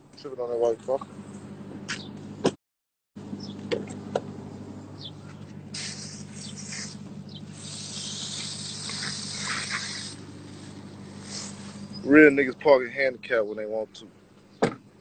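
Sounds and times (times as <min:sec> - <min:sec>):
steady low hum: 0:00.0 - 0:02.6, 0:03.2 - 0:15.0
phone microphone rustling hiss: 0:05.2 - 0:12.6.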